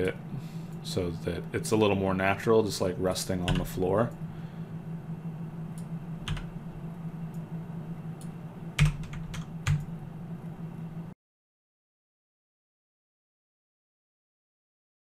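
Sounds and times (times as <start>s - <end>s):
low hum: 0.0s - 11.2s.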